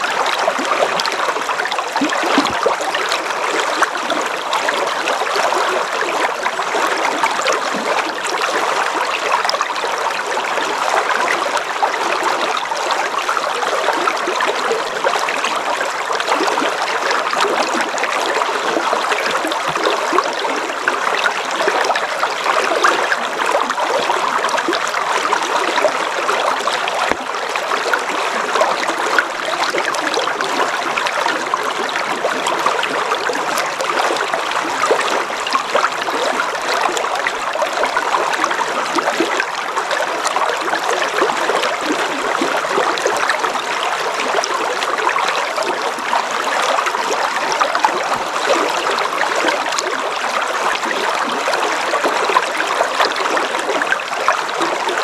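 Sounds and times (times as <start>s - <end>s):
river water rushing: 0.0s - 55.0s
water trickling and babbling: 0.0s - 55.0s.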